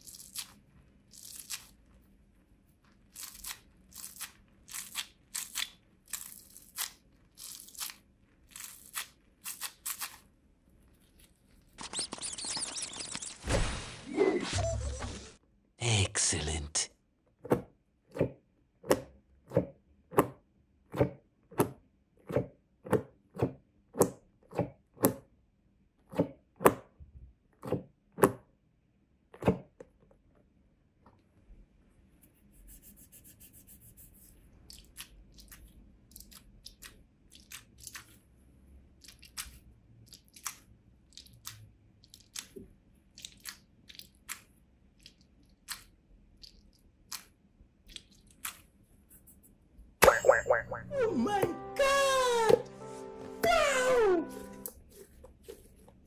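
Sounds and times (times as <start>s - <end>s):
rubber squishy toy squelching: 2.7s - 13.5s, 34.5s - 50.9s.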